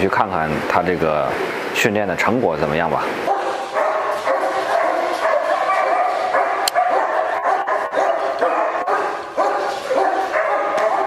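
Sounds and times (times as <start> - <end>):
dogs barking and whining: 3.2 - 11.0.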